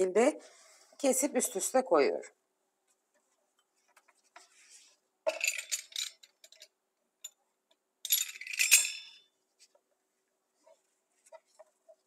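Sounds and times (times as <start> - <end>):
dough sheets rustling and crackling: 10.5 - 12.0.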